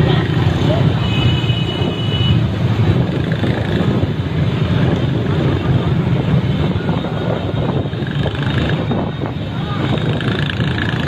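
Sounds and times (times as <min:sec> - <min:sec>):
motor scooter engines running: 0:00.0 - 0:11.0
wind rumble on microphone: 0:01.6 - 0:11.0.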